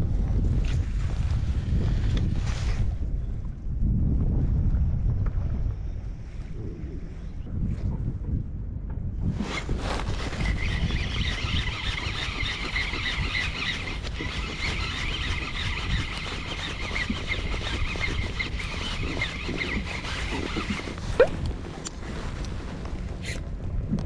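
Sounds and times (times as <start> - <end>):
wind rumble on microphone: 0.0 - 24.0
fishing reel gears whining: 10.2 - 21.3.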